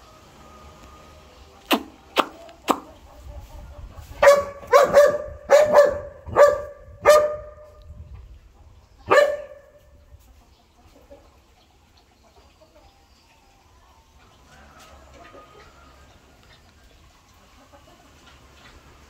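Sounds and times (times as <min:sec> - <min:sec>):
dog barking: 0:04.2 - 0:07.8, 0:09.0 - 0:09.8.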